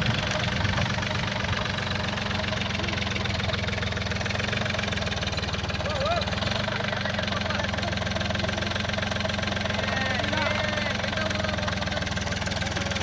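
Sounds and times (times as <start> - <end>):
diesel tractor engine chugging: 0.0 - 13.0.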